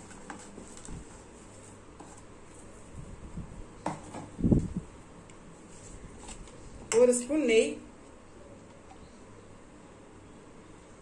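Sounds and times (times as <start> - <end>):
soft handling of plastic bag: 0.0 - 3.3.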